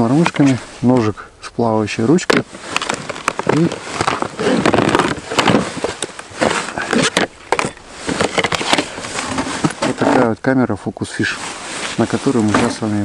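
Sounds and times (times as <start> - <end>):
rustle of fabric and bags: 1.9 - 10.3, 11.1 - 13.0
items clicking and knocking: 2.3 - 10.2.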